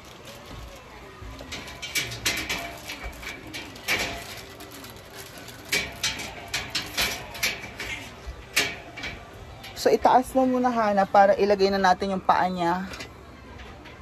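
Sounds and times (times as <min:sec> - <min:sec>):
metallic clicks and knocks: 0:01.4 - 0:04.7, 0:05.6 - 0:09.9.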